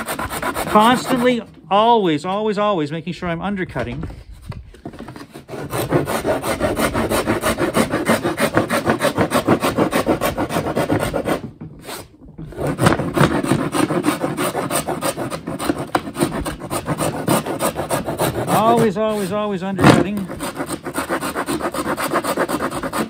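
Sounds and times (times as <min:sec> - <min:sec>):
file rasping on wood: 0:00.0 - 0:01.5, 0:05.2 - 0:23.0.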